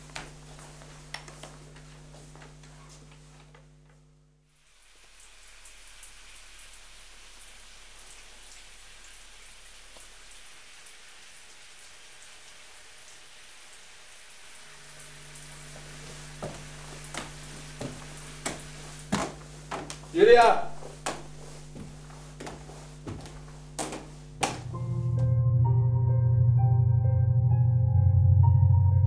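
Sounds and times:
shower water spraying: 4.5s - 24.8s
low hum: 20.8s - 29.0s.

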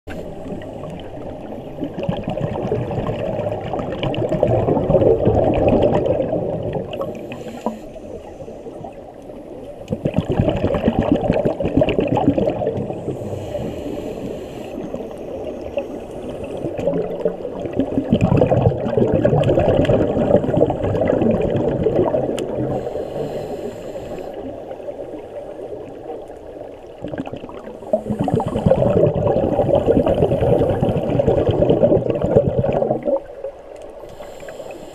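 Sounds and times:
bubbling exhalations underwater: 1.8s - 7.2s, 9.9s - 13.3s, 16.6s - 22.8s, 26.9s - 33.5s
regulator hissing inhalations: 7.1s - 8.8s, 13.0s - 16.1s, 22.7s - 24.6s, 34.0s - 34.9s.

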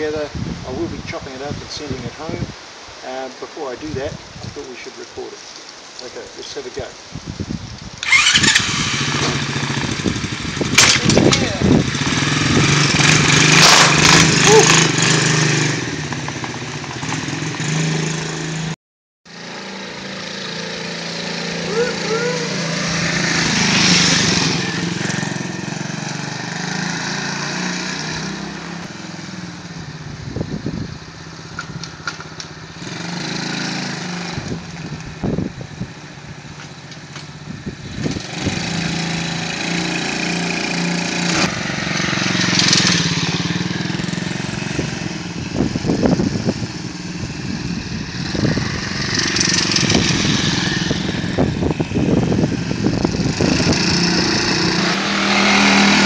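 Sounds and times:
small scooter engine passing: 8.0s - 10.9s, 11.8s - 18.6s, 19.3s - 30.0s, 35.7s - 56.0s.

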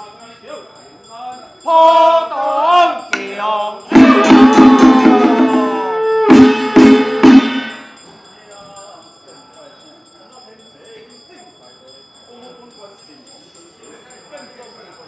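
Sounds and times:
sharp percussion strikes: 1.0s - 9.2s
loud ritual music: 1.7s - 8.2s.

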